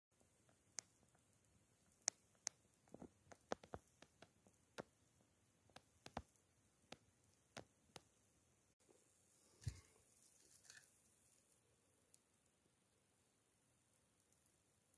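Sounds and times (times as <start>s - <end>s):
faint sharp clicks and taps: 0.2s - 8.2s.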